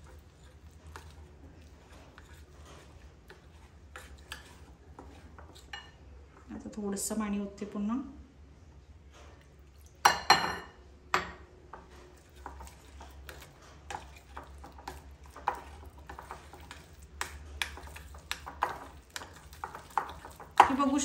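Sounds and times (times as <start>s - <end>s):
spoon scraping and knocking bowl: 0.0s - 6.0s, 10.1s - 21.0s
glass clinking: 10.1s - 11.4s.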